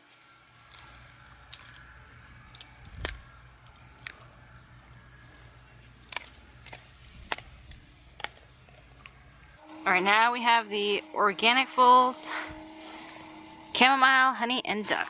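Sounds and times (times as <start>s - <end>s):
dog chewing with crunches: 5.8s - 9.4s.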